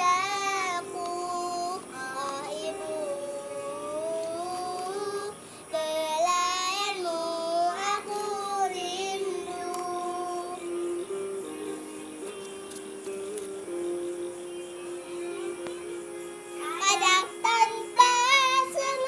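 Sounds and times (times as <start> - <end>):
girl singing into a microphone: 0.0 - 11.1, 16.6 - 19.0.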